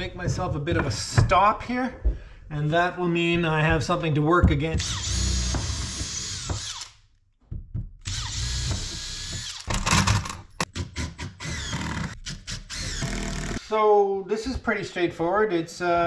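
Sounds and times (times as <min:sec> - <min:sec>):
cordless drill whining: 0:04.8 - 0:07.0, 0:08.1 - 0:09.9.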